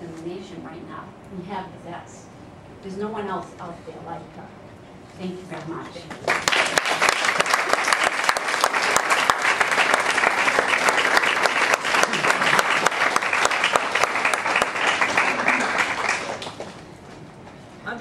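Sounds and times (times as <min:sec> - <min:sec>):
audience applauding: 0:06.2 - 0:16.8.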